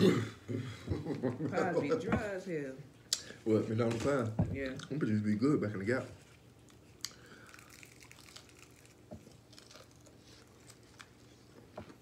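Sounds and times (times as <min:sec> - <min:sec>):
crispy chicken being chewed: 0:06.3 - 0:12.0.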